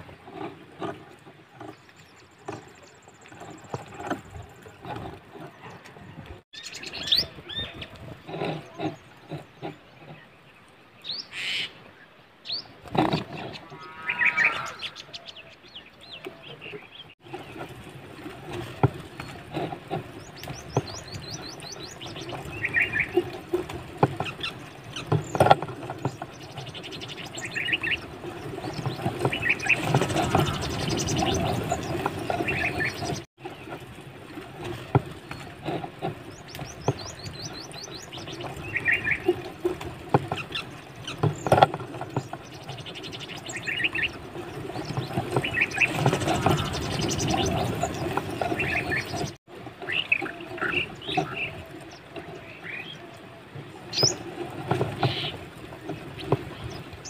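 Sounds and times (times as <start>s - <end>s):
dry grass and leaves rustling: 17.2s - 52.1s
small birds chirping: 19.2s - 23.4s, 24.2s - 33.3s, 35.3s - 39.5s, 40.3s - 53.2s, 53.9s - 54.2s.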